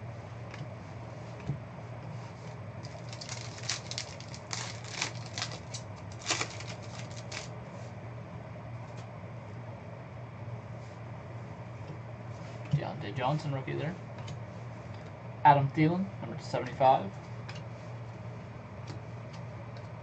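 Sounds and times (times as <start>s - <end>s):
steady low hum: 0.0s - 20.0s
foil wrapper crinkling: 2.8s - 7.5s
cards being handled: 2.9s - 7.5s.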